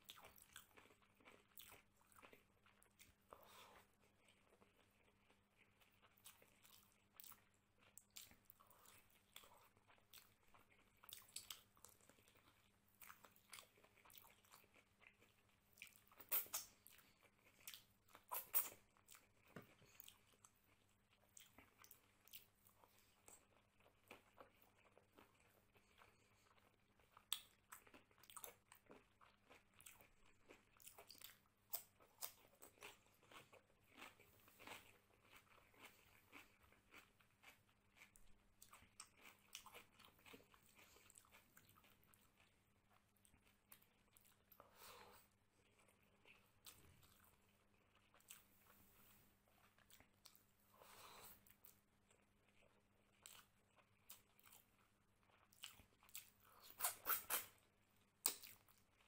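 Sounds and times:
person chewing: 0.0s - 59.0s
wet mouth smacks: 56.7s - 57.5s.

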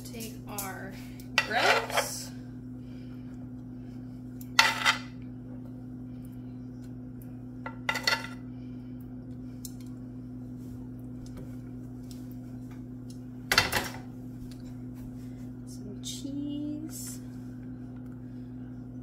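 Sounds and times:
steady low hum: 0.0s - 19.0s
utensils clinking against dishes: 1.4s - 2.2s.

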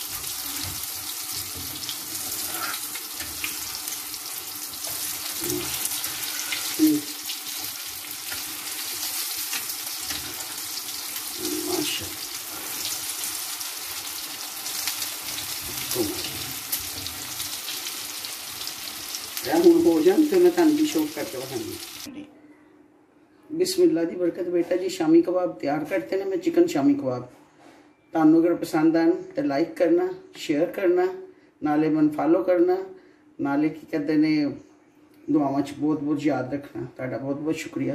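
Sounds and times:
food sizzling in hot oil: 0.0s - 22.1s
metal spatula scraping: 4.8s - 10.8s.

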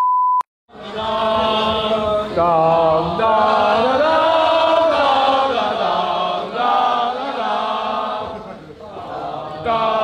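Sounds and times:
voices singing a chant-like melody: 0.7s - 10.0s.

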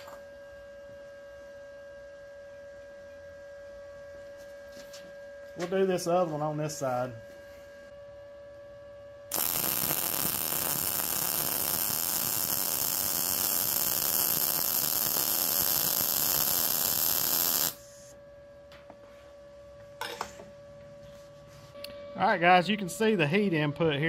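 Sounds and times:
welding arc crackling: 9.3s - 18.0s.

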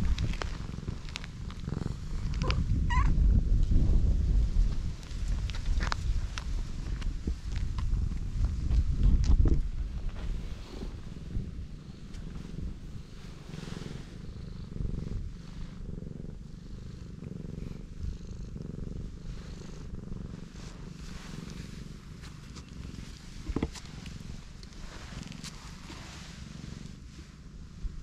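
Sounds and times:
cat purring: 0.0s - 28.0s
hand rustling over fur: 9.9s - 27.4s.

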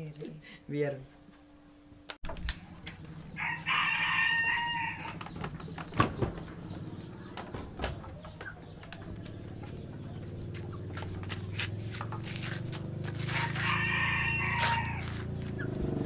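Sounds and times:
low steady hum: 0.0s - 15.6s
rooster crowing: 3.2s - 5.4s, 13.2s - 15.4s.

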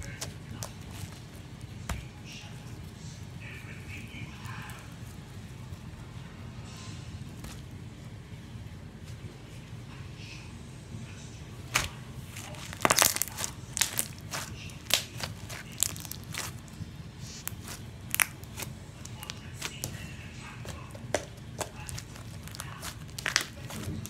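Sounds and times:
slime popping and crackling: 11.7s - 24.0s.

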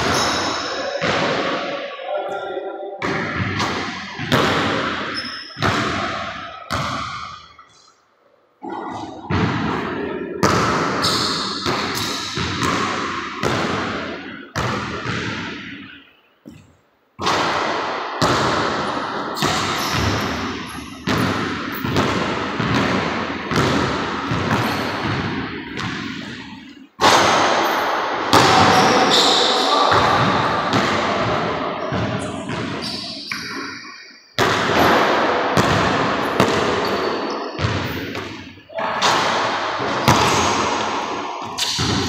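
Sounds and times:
basketball bouncing on wooden floor: 3.0s - 7.5s, 8.9s - 15.7s, 18.2s - 26.3s, 29.9s - 33.5s, 34.4s - 42.0s.

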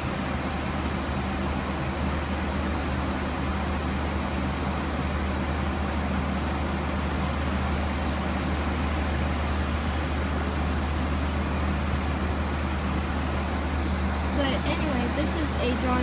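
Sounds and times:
low engine drone: 0.0s - 16.0s
rush of air in airliner cabin: 0.0s - 16.0s.

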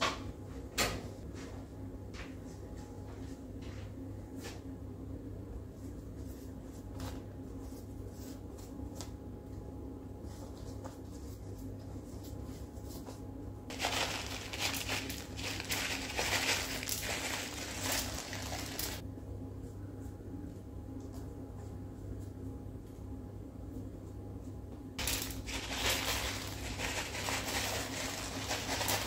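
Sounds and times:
bag crinkling rustle: 13.7s - 19.0s, 25.0s - 29.0s.

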